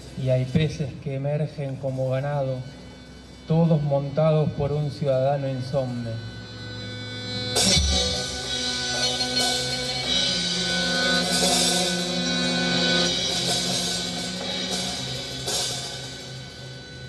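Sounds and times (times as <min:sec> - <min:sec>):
guitar: 0:00.0 - 0:17.0
accordion held notes: 0:01.6 - 0:17.0
drum kit with cymbals: 0:06.6 - 0:17.0.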